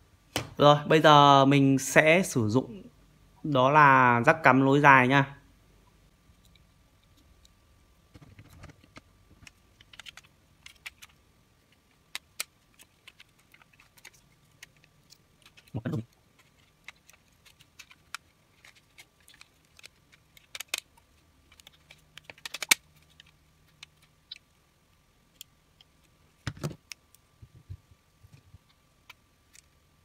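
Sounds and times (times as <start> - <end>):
plastic clicks and rattles: 8.1 - 11.2, 12.0 - 24.4.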